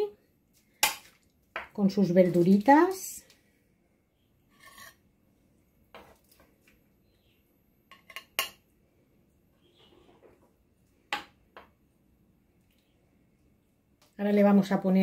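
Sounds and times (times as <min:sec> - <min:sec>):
food scraping on plate: 0:04.5 - 0:05.0.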